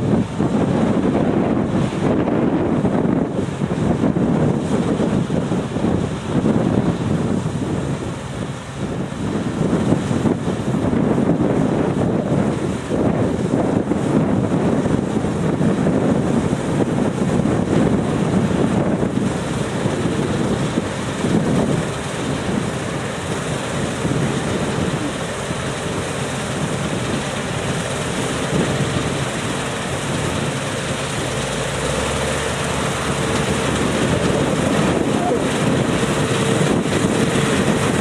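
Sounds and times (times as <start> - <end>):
combine harvester running: 0.0 - 38.0
wind buffeting microphone: 0.0 - 38.0
tractor engine running: 8.1 - 38.0.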